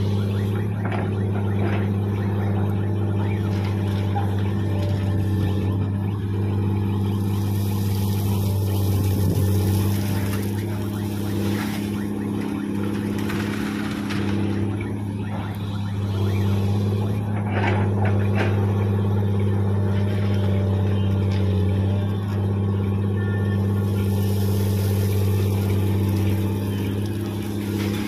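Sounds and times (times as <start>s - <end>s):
truck diesel idling: 0.0s - 14.0s, 14.6s - 28.0s
excavator diesel engine under load: 0.0s - 28.0s
gravel spilling into steel truck bed: 7.4s - 12.0s, 23.8s - 28.0s.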